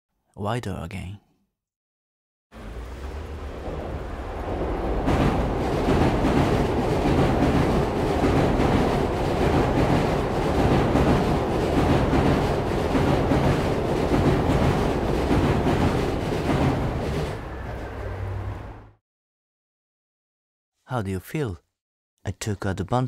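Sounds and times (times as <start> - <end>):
dense low rumbling noise: 2.6 - 9.6.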